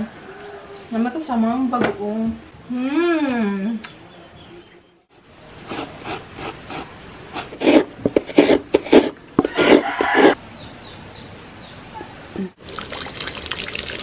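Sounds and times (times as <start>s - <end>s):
coconut grating scrapes: 5.6s - 10.4s.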